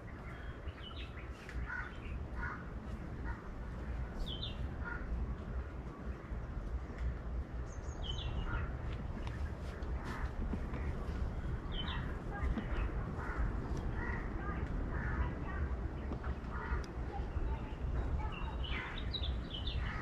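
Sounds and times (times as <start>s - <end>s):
low background rumble: 0.0s - 20.0s
small birds chirping: 0.0s - 20.0s
crows cawing: 1.6s - 3.8s, 4.8s - 5.2s, 12.7s - 15.4s.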